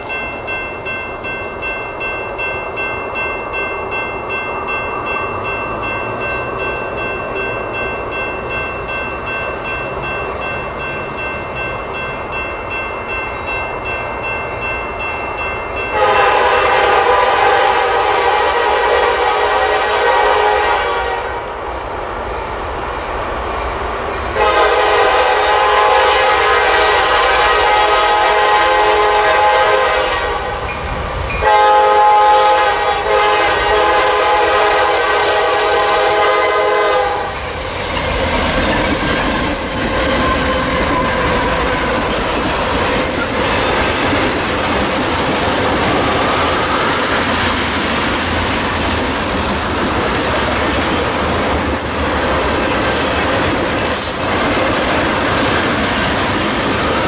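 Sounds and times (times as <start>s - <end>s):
diesel locomotive engines: 0.0s - 57.0s
locomotive horn blasts: 15.9s - 21.6s, 24.4s - 30.6s, 31.4s - 37.4s
train wheels clacking on rails: 22.4s - 57.0s.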